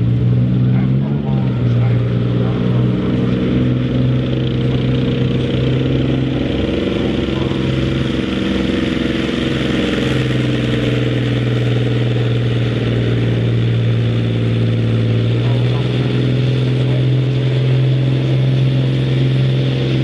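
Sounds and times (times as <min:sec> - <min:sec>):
diesel engine low drone: 0:00.0 - 0:20.0.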